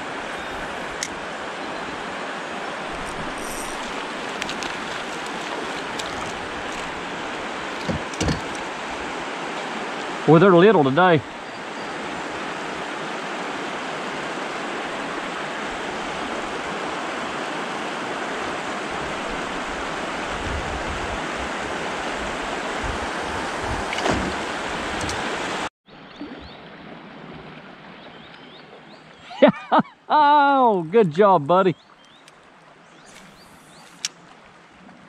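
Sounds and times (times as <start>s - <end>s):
river current rushing: 0.0s - 25.7s.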